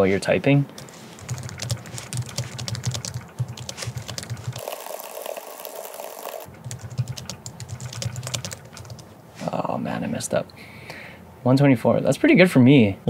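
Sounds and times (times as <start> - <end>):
fast typing on keyboard: 0.8 - 9.1.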